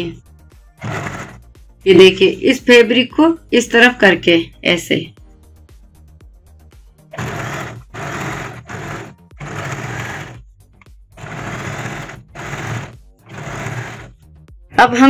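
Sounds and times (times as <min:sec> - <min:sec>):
electric sewing machine stitching: 0:00.8 - 0:01.4, 0:07.1 - 0:10.4, 0:11.2 - 0:14.2.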